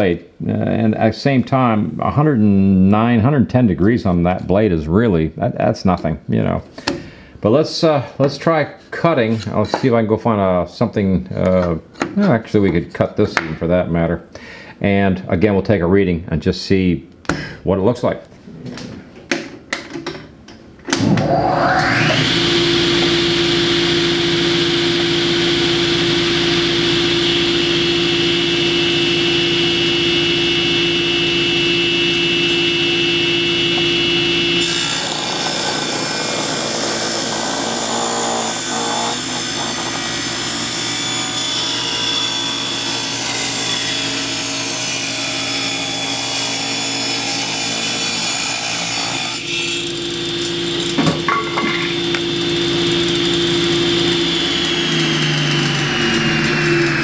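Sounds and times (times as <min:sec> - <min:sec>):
table saw cutting wood: 0:20.9 - 0:57.0
table saw motor running: 0:21.0 - 0:57.0.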